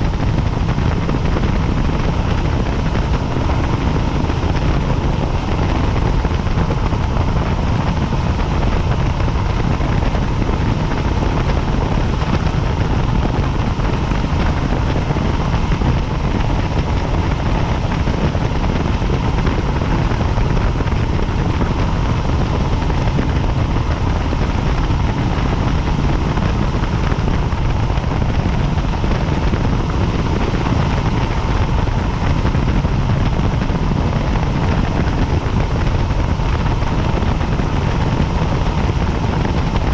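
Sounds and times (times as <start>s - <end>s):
engine whine: 0.0s - 39.9s
helicopter rotor beating: 0.0s - 39.9s.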